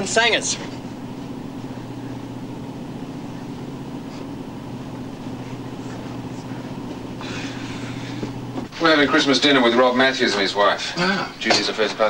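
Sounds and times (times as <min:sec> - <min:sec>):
boat machinery hum: 0:00.0 - 0:12.0.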